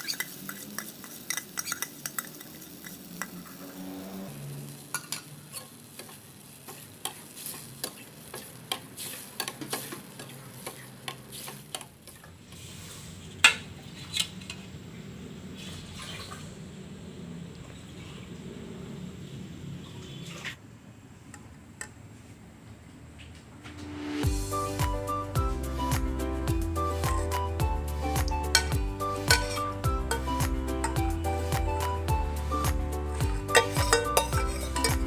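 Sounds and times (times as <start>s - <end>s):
sauce sizzling in a pan: 0.0s - 13.0s, 26.6s - 31.5s, 32.2s - 35.0s
utensil scraping metal pan: 28.6s - 31.0s, 33.2s - 35.0s.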